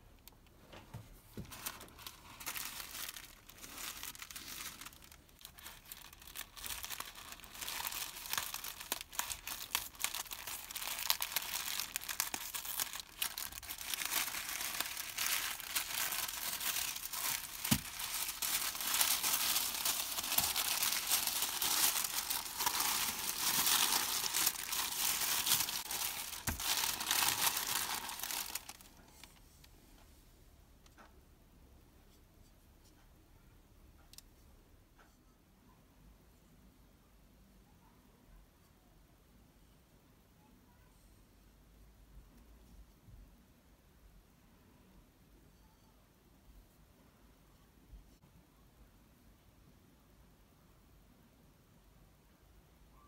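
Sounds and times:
tissue paper crinkling: 0:01.2 - 0:29.4.

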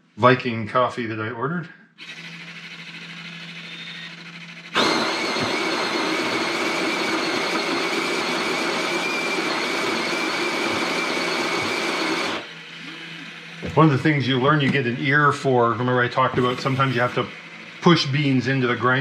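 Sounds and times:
coffee grinder grinding beans: 0:02.0 - 0:14.0, 0:16.4 - 0:19.0.

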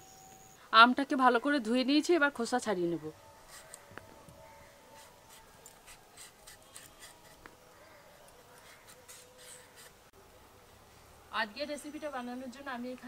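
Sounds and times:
blade scraping mango skin: 0:05.0 - 0:07.5, 0:08.5 - 0:10.0.

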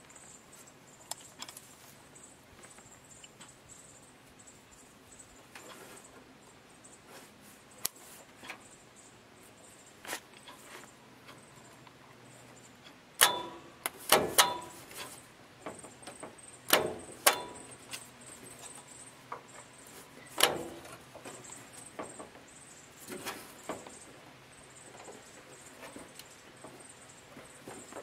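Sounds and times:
sharp metallic clicks: 0:12.8 - 0:15.2, 0:16.0 - 0:19.6.

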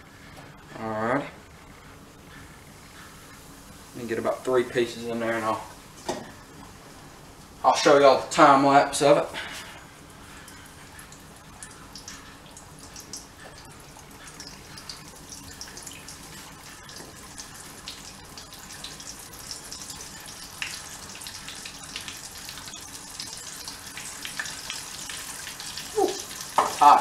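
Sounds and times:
fish deep-frying in hot oil: 0:10.3 - 0:27.0.

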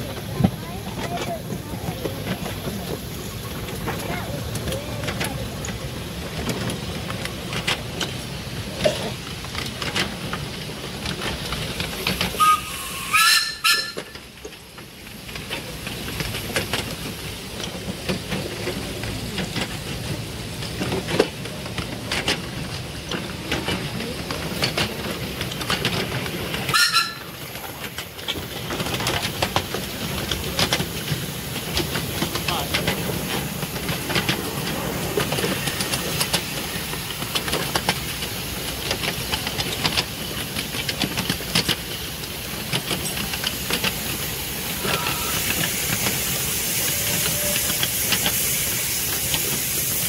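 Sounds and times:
miniature steam train running: 0:00.0 - 0:50.0
wheels clicking over rail joints: 0:00.0 - 0:50.0
steam whistle: 0:12.4 - 0:14.2, 0:26.7 - 0:27.3, 0:44.8 - 0:45.6, 0:46.7 - 0:47.9.

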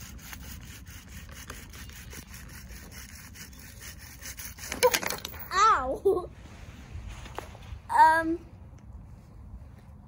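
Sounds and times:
bow drill rubbing wood on wood: 0:00.0 - 0:05.2.

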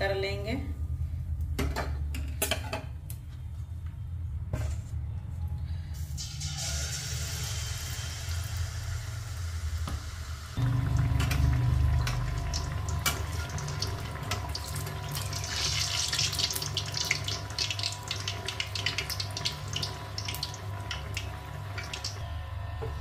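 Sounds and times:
batter sizzling in hot oil: 0:06.2 - 0:22.2
oil bubbling with crackling pops: 0:10.6 - 0:22.2.

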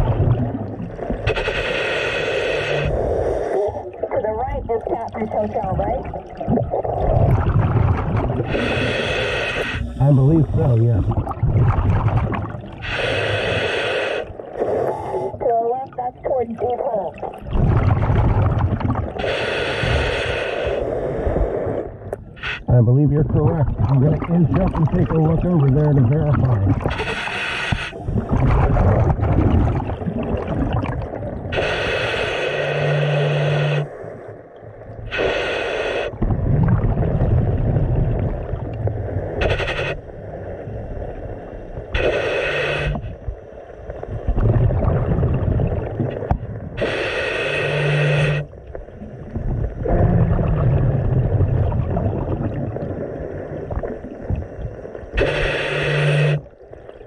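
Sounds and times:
low bubbling rumble: 0:00.0 - 0:01.4, 0:02.9 - 0:09.0, 0:09.8 - 0:13.0, 0:14.3 - 0:19.3, 0:21.1 - 0:27.0, 0:27.9 - 0:31.6, 0:36.1 - 0:42.0, 0:42.9 - 0:46.8, 0:48.3 - 0:55.2
regulator breathing hiss: 0:01.3 - 0:03.8, 0:08.5 - 0:11.1, 0:12.8 - 0:15.4, 0:19.2 - 0:22.7, 0:26.9 - 0:28.1, 0:31.5 - 0:34.3, 0:35.0 - 0:36.2, 0:39.4 - 0:40.2, 0:42.0 - 0:43.8, 0:46.8 - 0:48.6, 0:55.1 - 0:56.5.

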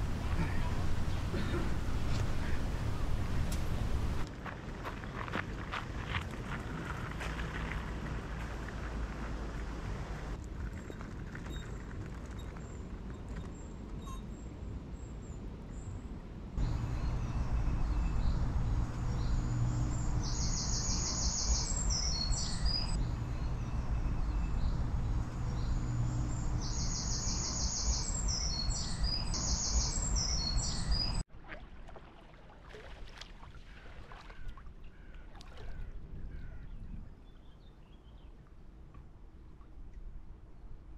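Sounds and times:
outdoor background noise: 0:00.0 - 0:40.9
low hum: 0:16.6 - 0:31.2
small birds singing: 0:16.6 - 0:31.2.

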